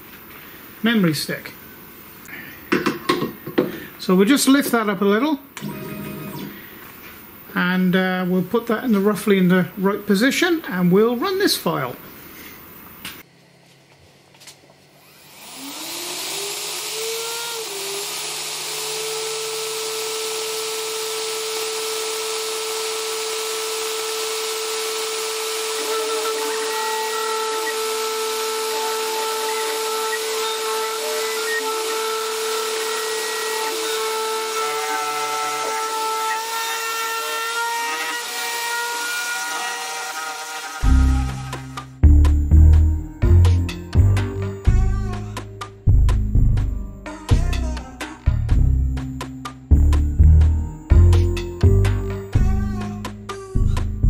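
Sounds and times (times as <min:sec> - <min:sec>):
router spindle whine: 0:14.7 - 0:41.9
bit carving wood hiss: 0:20.9 - 0:34.0.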